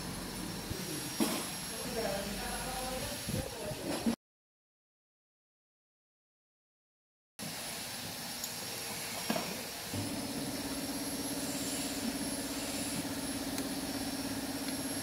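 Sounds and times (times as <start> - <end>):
machine humming: 9.9 - 15.0.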